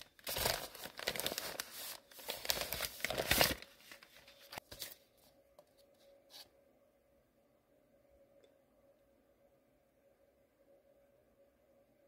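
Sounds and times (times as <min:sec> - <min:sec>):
padded envelope tearing: 0:00.0 - 0:05.0.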